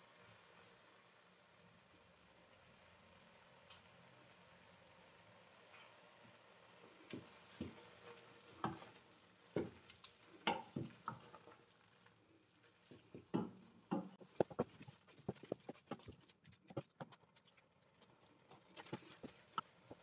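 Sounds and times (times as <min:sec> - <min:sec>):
carrots sizzling: 0:05.0 - 0:20.0
wooden spoon scraping steel pot: 0:14.0 - 0:17.3, 0:18.5 - 0:20.0.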